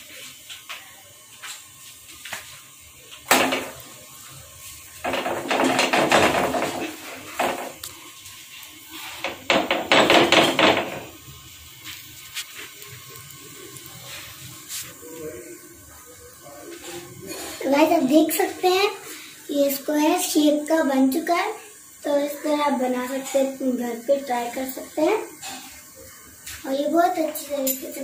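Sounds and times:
iron griddle knocking and clattering: 0:03.2 - 0:04.0, 0:05.0 - 0:07.9, 0:09.0 - 0:11.2.

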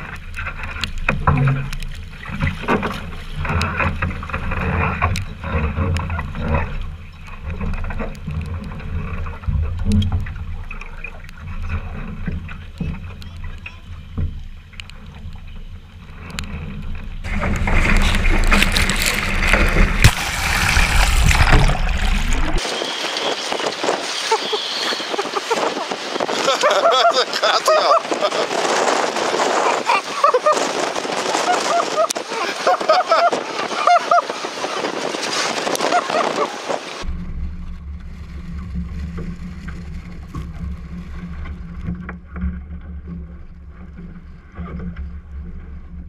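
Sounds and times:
water hitting hull: 0:00.0 - 0:24.2, 0:25.2 - 0:46.0
hissing wind noise: 0:16.1 - 0:41.8
wind buffeting microphone: 0:17.2 - 0:44.4.

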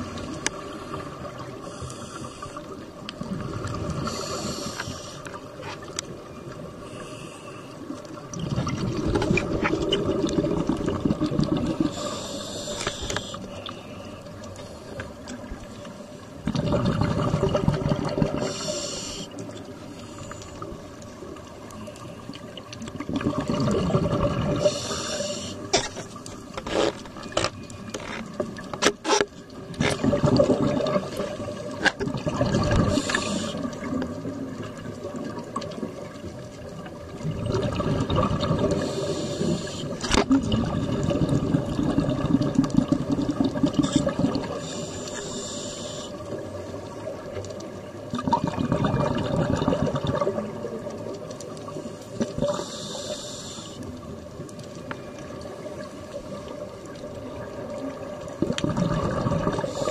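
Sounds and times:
scuba regulator inhale hiss: 0:00.6 - 0:02.8, 0:04.0 - 0:05.4, 0:06.8 - 0:07.8, 0:11.8 - 0:15.0, 0:18.4 - 0:20.7, 0:24.6 - 0:25.7, 0:32.8 - 0:33.8, 0:38.7 - 0:40.0, 0:44.5 - 0:46.4, 0:51.8 - 0:53.9, 0:59.6 - 0:59.9
bubbling exhaled air: 0:08.2 - 0:13.5, 0:16.4 - 0:19.4, 0:23.0 - 0:25.9, 0:29.8 - 0:34.4, 0:37.2 - 0:46.1, 0:48.1 - 0:50.9, 0:51.7 - 0:53.7, 0:58.3 - 0:59.9.

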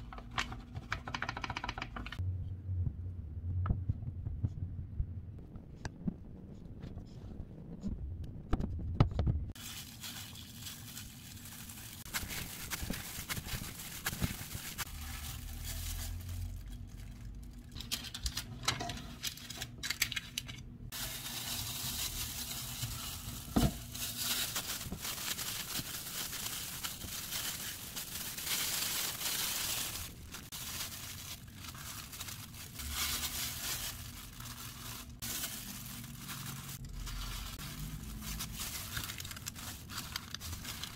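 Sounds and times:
plastic gloves crinkling: 0:09.5 - 0:18.5, 0:19.1 - 0:40.9.

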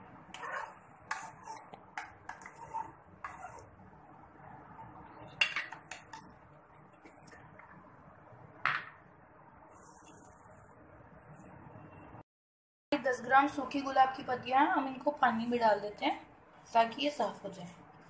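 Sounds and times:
spoon scraping steel pan: 0:00.3 - 0:03.7.

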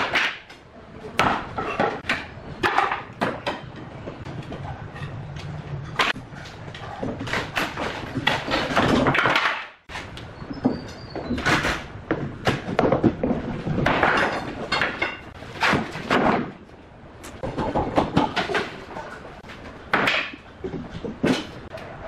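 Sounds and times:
wooden boards clattering down: 0:00.0 - 0:04.2, 0:06.0 - 0:16.7, 0:17.4 - 0:21.7.

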